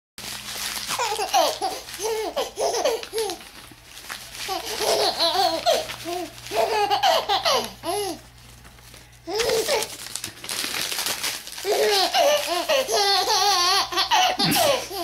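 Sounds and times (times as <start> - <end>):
paper crinkling: 0.2 - 13.9
baby laughing: 0.9 - 3.4, 4.5 - 8.2, 11.6 - 15.0.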